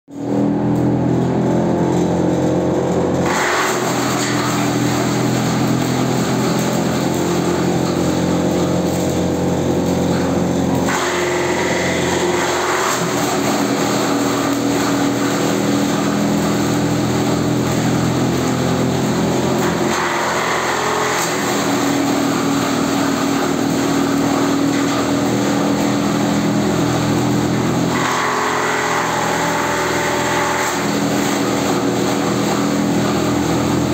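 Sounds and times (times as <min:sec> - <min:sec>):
frond shredder machine hum: 0:00.1 - 0:33.9
fronds being chopped: 0:03.2 - 0:09.2, 0:09.8 - 0:16.6, 0:19.6 - 0:26.2.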